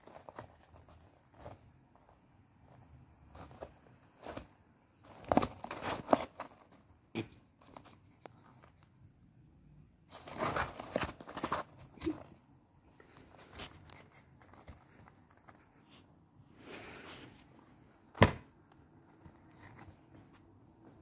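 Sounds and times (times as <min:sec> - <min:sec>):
cardboard box crinkling and scraping: 0:03.4 - 0:06.8, 0:10.1 - 0:12.3.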